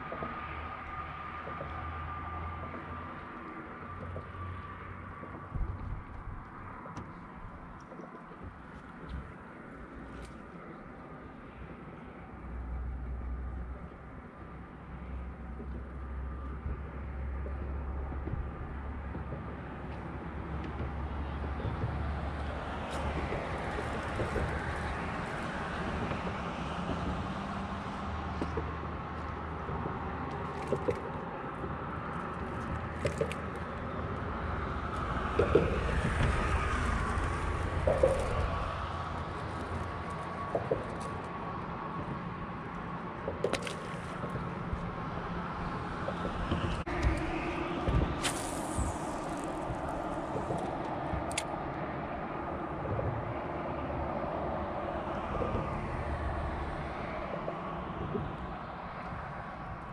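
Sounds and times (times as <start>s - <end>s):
traffic rumble on bridge: 0.0s - 59.9s
wind over open water: 0.0s - 59.9s.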